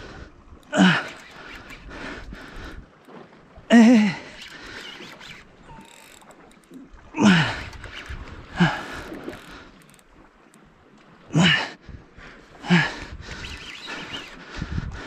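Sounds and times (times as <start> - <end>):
fishing reel winding and clicking: 0.7 - 2.8, 4.3 - 6.8, 7.6 - 10.1, 13.3 - 14.4.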